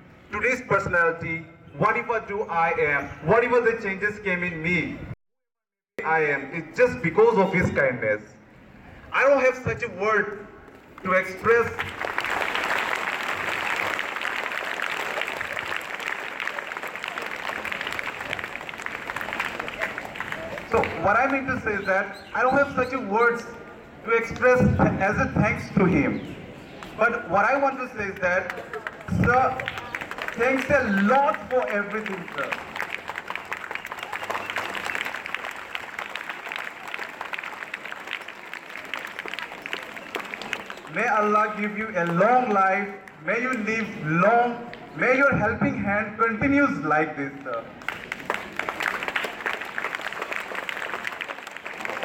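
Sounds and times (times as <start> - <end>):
people clapping: 10.7 - 21.6, 27.6 - 43.2, 47.5 - 52.0
audience applauding: 11.8 - 21.4, 28.5 - 40.9, 47.8 - 52.0.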